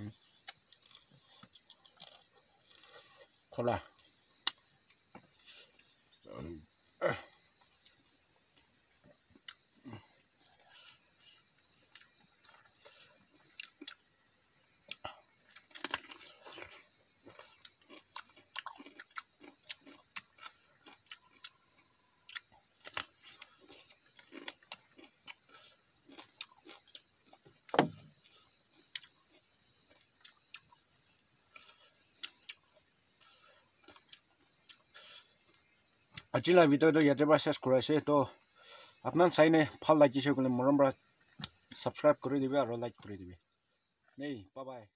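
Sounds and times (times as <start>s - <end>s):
insects chirring: 0.0s - 44.9s
chewing: 0.4s - 14.2s, 14.8s - 36.3s.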